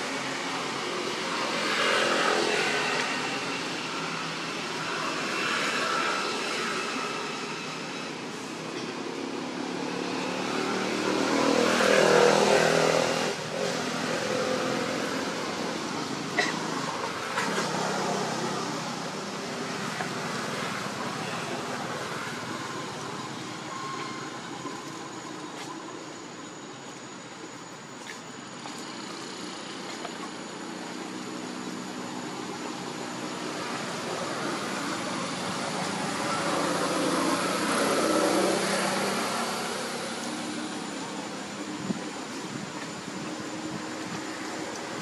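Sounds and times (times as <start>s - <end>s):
passing vehicle engine: 9.4s - 25.7s, 28.6s - 45.0s.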